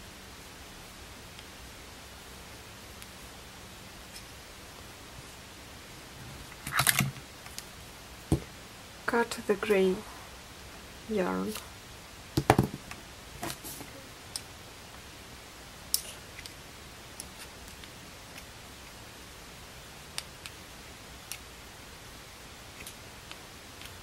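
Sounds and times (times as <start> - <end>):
faint hiss: 0.0 - 24.0
light clicks and taps of needles: 15.9 - 19.0, 20.1 - 20.6.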